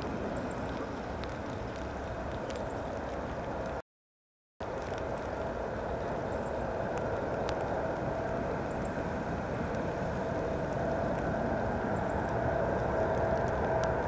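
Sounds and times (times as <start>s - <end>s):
jet engines rushing hum: 4.6s - 14.0s.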